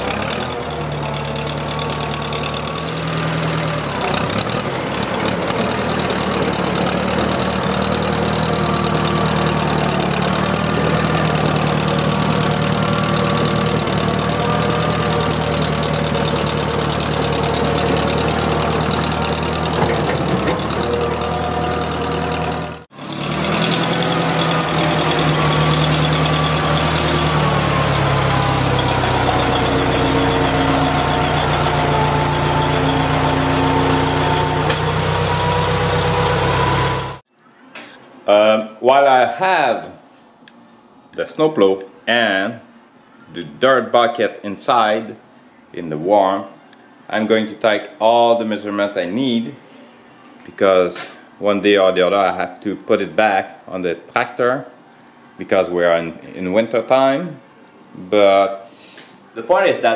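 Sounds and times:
tractor engine running: 0.0 - 37.3.

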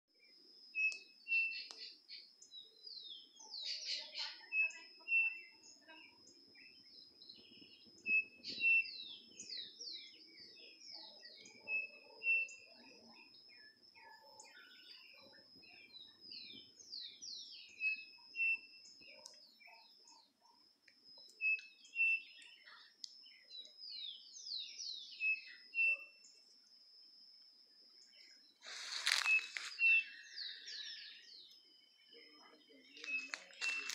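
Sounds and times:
birds chirping: 0.1 - 26.7, 27.4 - 33.9
high insect drone: 21.6 - 33.9.

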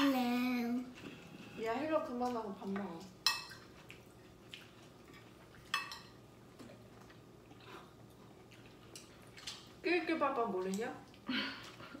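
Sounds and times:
tableware clinking: 5.7 - 6.2.

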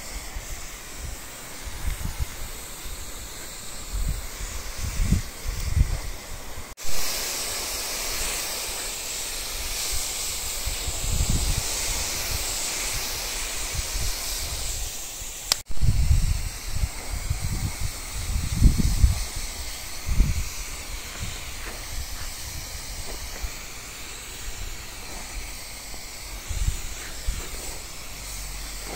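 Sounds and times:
sprayer nozzle hissing: 0.0 - 28.9.

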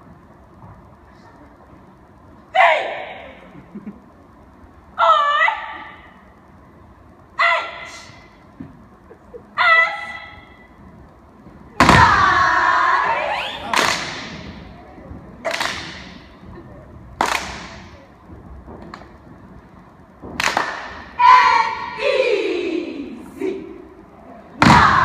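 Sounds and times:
stomping and clapping in unison: 13.6 - 14.8, 15.4 - 16.4, 17.2 - 18.0, 20.3 - 21.9, 24.6 - 25.0.

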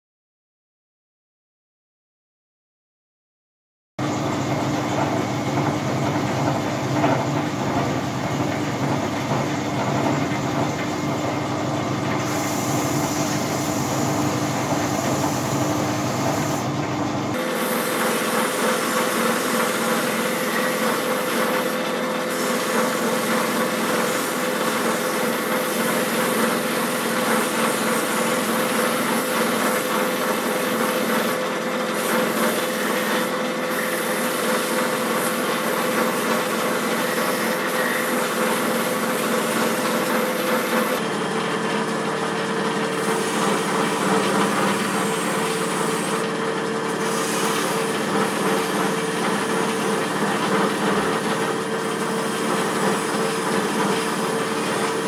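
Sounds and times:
metal polishing on buffing wheel: 43.0 - 46.2.

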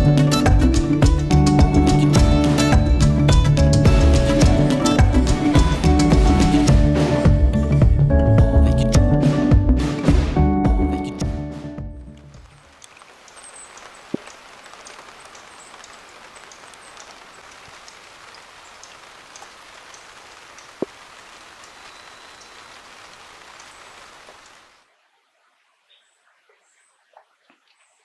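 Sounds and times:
steady rain falling: 12.2 - 27.7.

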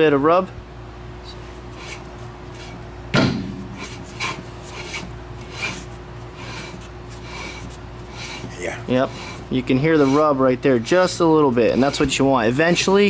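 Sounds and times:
brake shoes rasping on drum: 3.7 - 13.0.

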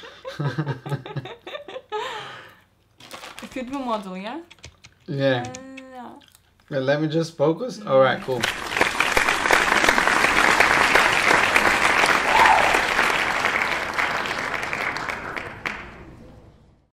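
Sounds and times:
applause: 8.2 - 16.2.

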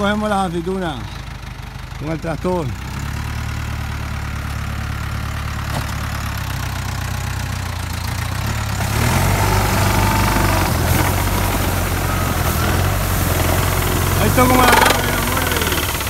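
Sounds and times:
tractor engine running: 0.0 - 16.0
harsh rattling machine noise: 8.9 - 16.0.

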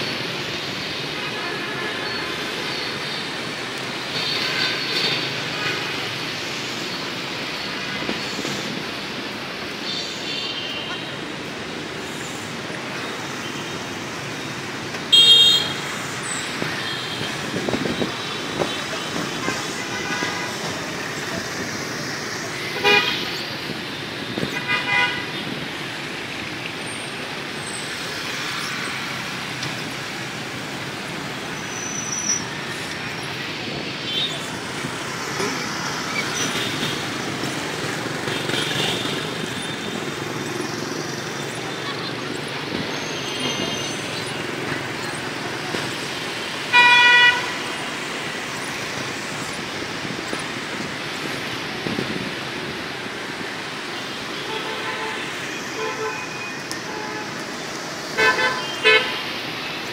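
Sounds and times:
vehicles passing on wet road: 0.0 - 59.9
vehicle horn honking: 15.1 - 15.8, 46.7 - 47.5.

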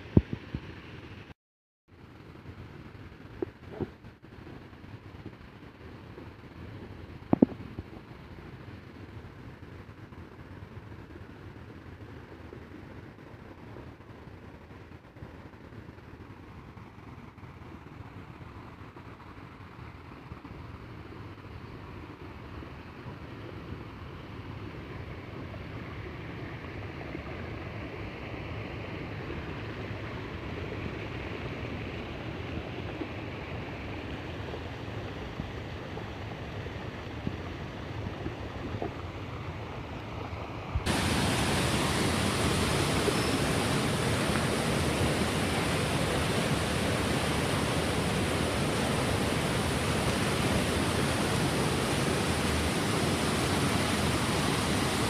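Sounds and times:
waterfall and stream rushing: 40.0 - 55.0.

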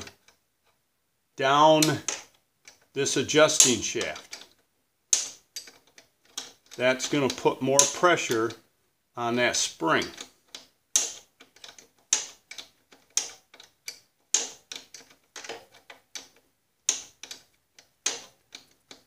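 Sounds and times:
wrench clicking: 10.1 - 19.0.

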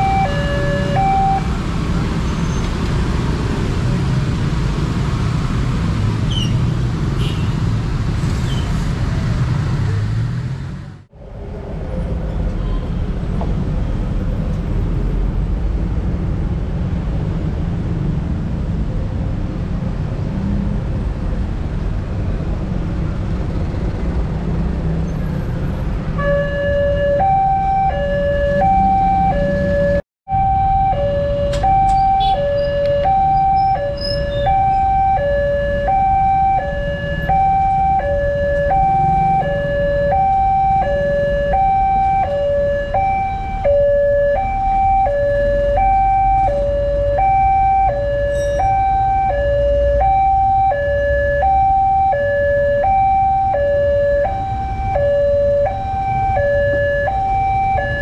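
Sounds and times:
two-tone crossing warning alarm: 0.0 - 1.6, 26.2 - 58.0
motorcycle and car traffic: 0.0 - 58.0.

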